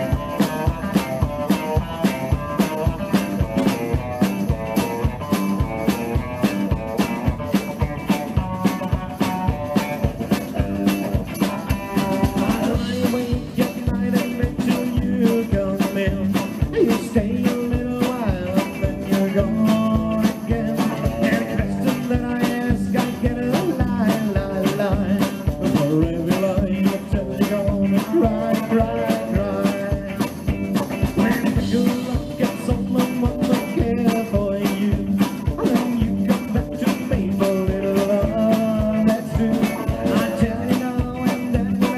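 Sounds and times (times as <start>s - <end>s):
rockabilly band playing live: 0.0s - 41.9s.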